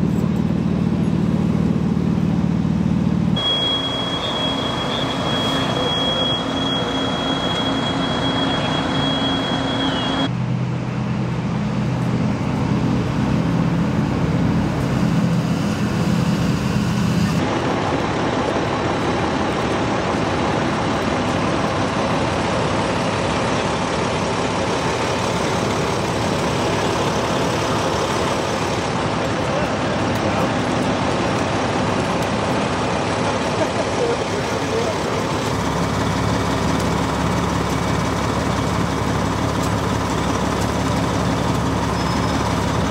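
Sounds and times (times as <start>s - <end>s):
diesel engines running: 0.0s - 42.9s
thin high whine: 3.4s - 10.3s, 14.6s - 17.5s.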